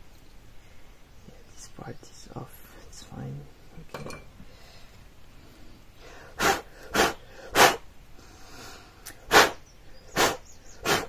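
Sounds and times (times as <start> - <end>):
person blowing sharp puffs: 6.1 - 11.0.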